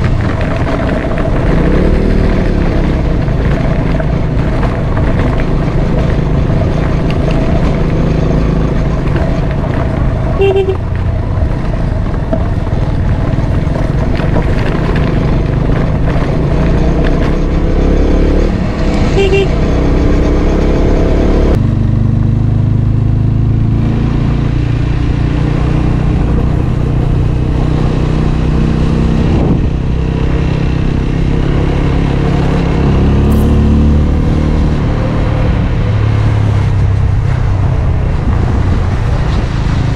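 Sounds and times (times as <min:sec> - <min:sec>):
motorcycle engine running: 0:00.0 - 0:39.9
horn toots: 0:10.4 - 0:11.0, 0:19.0 - 0:20.0.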